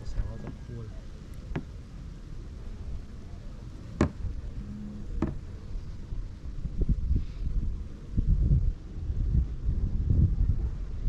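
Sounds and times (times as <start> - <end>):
wind rumble on microphone: 0.0 - 11.0
sharp knocks: 4.0 - 4.3, 5.2 - 5.4.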